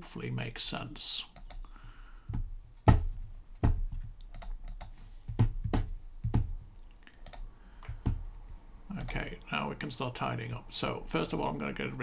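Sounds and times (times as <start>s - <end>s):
mouse and keyboard clicking: 1.4s - 1.6s, 4.2s - 5.0s, 5.8s - 8.2s.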